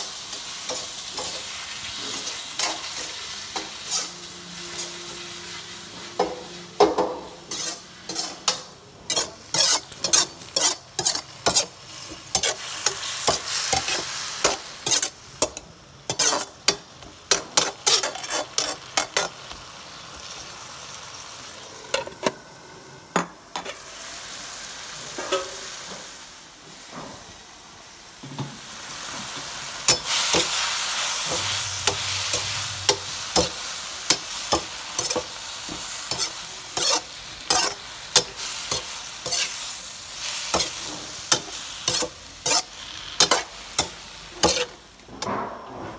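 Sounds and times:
stir-fry sizzling: 0.0 - 45.3
metal spatula scraping wok: 0.3 - 19.4, 29.9 - 45.3.

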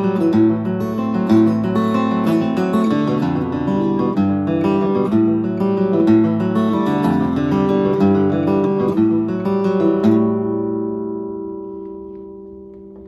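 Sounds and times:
acoustic guitar playing: 0.0 - 13.0.

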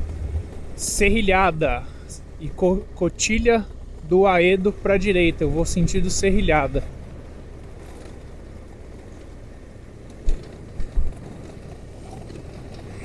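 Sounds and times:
low thumps: 0.0 - 8.5
motorcycle engine rumble: 0.0 - 13.0
wind and road noise: 0.0 - 13.0.

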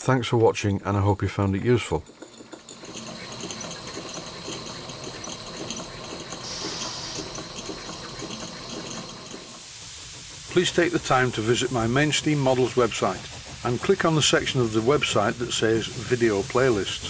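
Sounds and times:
model steam engine ticking: 0.9 - 17.0
steam hissing: 2.4 - 17.0.

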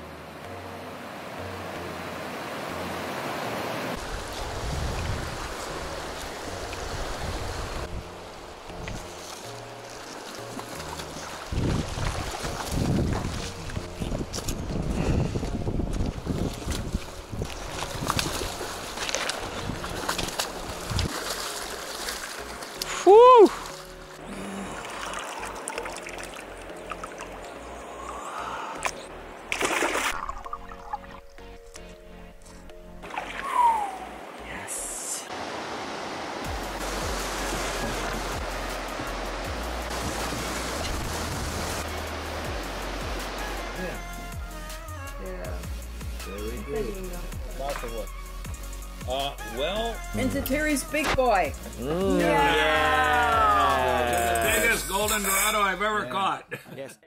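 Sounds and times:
rushing river water: 0.0 - 56.0.

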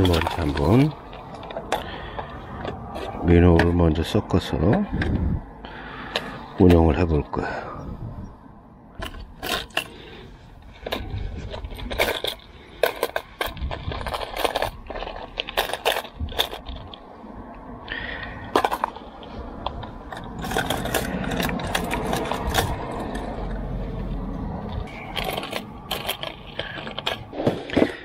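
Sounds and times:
fishing lures clattering in tackle box: 0.0 - 3.8, 9.0 - 17.0, 18.0 - 23.5, 24.8 - 28.0.

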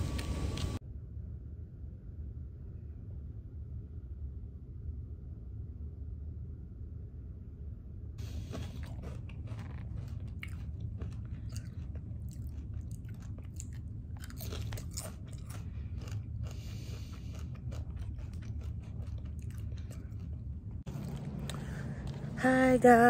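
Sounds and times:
steady low hum: 0.0 - 23.0
chewing and crunching: 8.2 - 22.4.

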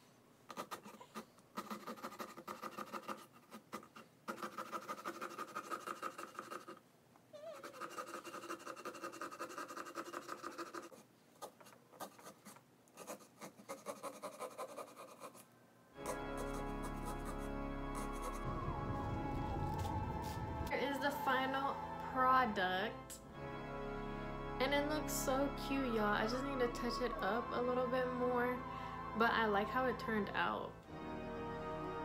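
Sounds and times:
marker scratching on pumpkin: 0.5 - 6.8, 7.4 - 18.4.

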